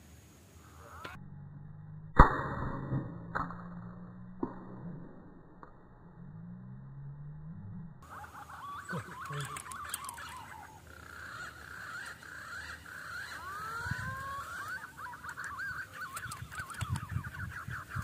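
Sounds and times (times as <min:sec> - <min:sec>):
deep low bird calls: 0:00.6 - 0:01.4, 0:07.8 - 0:18.0
birds chirping and whistling: 0:08.0 - 0:18.0.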